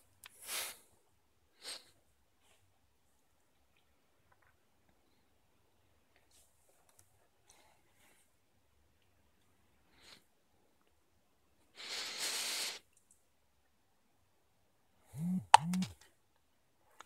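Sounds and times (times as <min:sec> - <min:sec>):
sharp click: 0:15.2 - 0:16.0.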